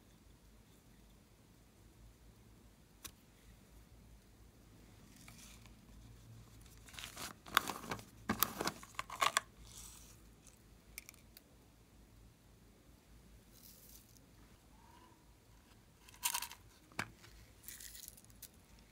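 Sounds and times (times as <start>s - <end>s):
plastic sequins rustling: 16.0s - 18.9s.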